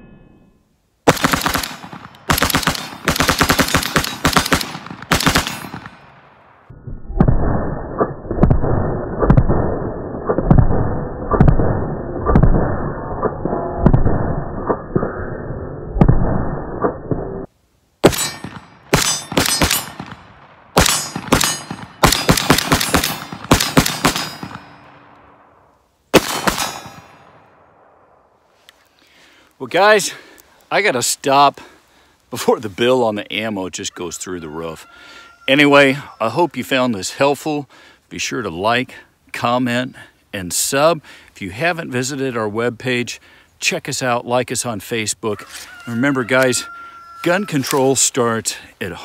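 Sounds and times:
rapid rifle gunfire: 1.1 - 5.9, 20.8 - 24.6.

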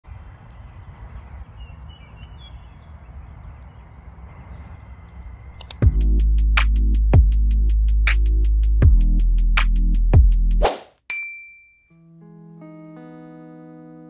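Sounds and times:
electronic music with heavy bass: 5.8 - 10.6.

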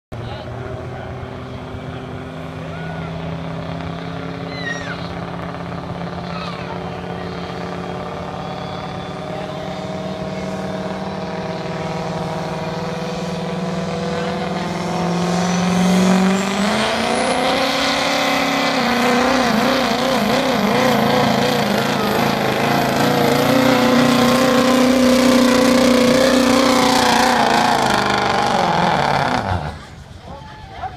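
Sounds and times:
diesel pickup engine revving: 0.1 - 30.9
turbo whistle: 8.3 - 9.9.

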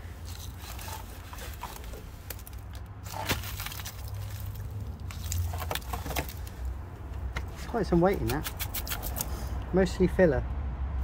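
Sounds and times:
rusted metal crackling and crunching: 0.0 - 9.3.

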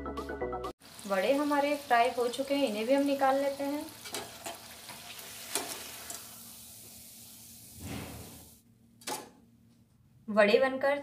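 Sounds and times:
hot oil sizzling: 0.8 - 8.6.

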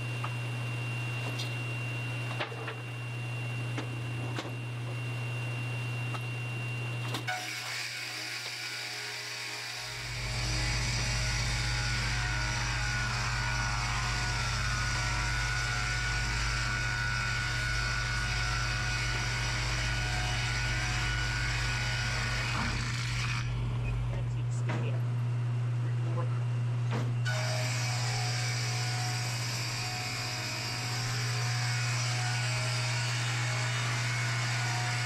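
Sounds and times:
electric motor humming: 0.0 - 35.0
saws cutting wood: 7.3 - 23.5, 27.2 - 35.0.

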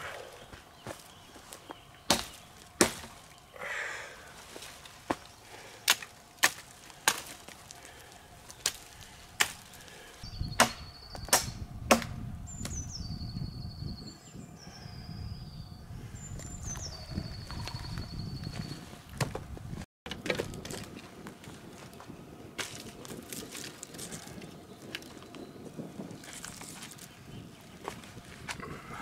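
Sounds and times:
knife chopping branch: 2.1 - 3.2, 5.8 - 7.6, 8.5 - 9.8, 10.6 - 12.8
bird trilling: 12.5 - 18.8.

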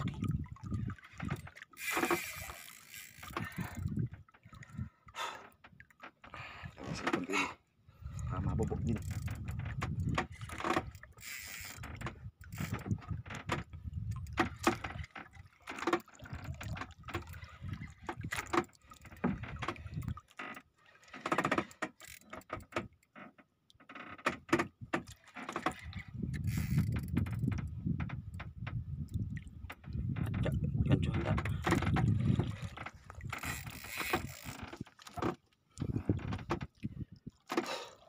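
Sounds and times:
fishing reel clicking: 1.7 - 3.8, 10.9 - 12.8, 22.0 - 22.5, 26.3 - 27.2, 33.4 - 34.8.

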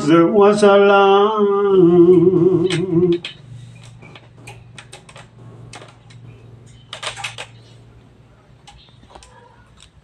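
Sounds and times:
hands clicking fan parts: 2.6 - 7.6.

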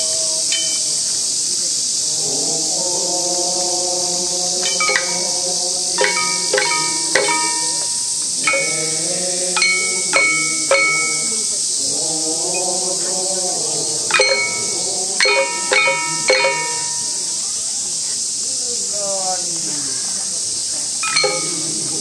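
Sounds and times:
steady high hiss: 0.0 - 22.0
voice chanting: 2.1 - 17.6, 21.0 - 22.0
metallic percussion strikes: 4.6 - 11.6, 14.1 - 17.5, 21.0 - 22.0.

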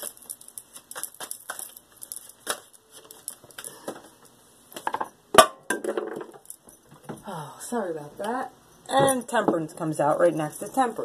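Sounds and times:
cards shuffling: 0.0 - 4.2.

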